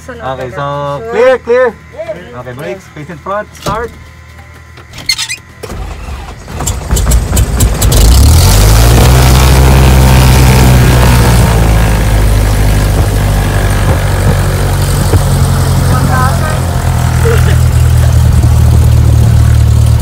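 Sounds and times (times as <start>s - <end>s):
aircraft piston engine running: 6.6s - 20.0s.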